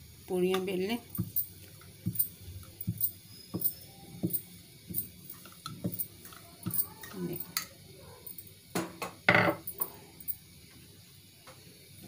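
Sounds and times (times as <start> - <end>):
rolling pin knocking on marble: 2.8 - 5.0, 9.0 - 9.6.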